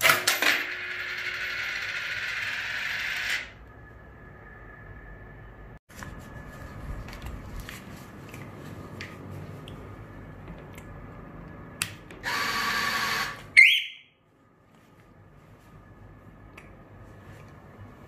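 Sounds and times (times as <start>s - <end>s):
faint electrical hum: 0.8s - 18.0s
small motor whirring: 12.2s - 13.4s.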